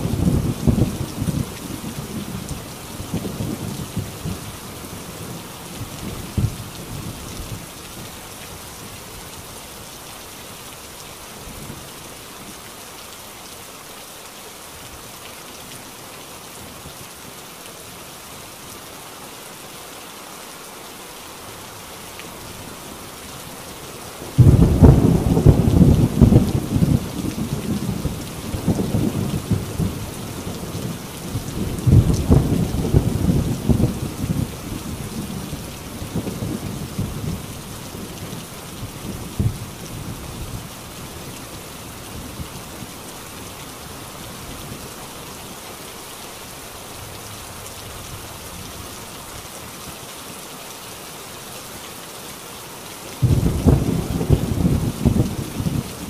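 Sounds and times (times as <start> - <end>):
heavy rain on a tin roof: 0.0 - 56.0
thunder rumbling: 24.3 - 38.1, 53.2 - 56.0
loud thunderclap: 24.4 - 27.0, 53.2 - 55.9.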